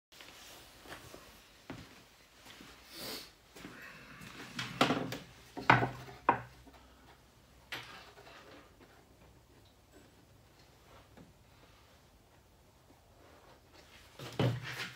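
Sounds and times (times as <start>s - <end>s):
wooden boards knocking on table: 4.6s - 6.5s.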